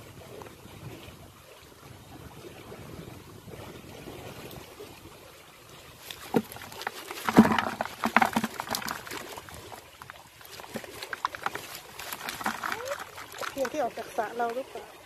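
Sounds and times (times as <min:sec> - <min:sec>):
fish flapping in plastic bucket: 0:06.0 - 0:14.6
trap knocking against bucket: 0:06.1 - 0:13.9.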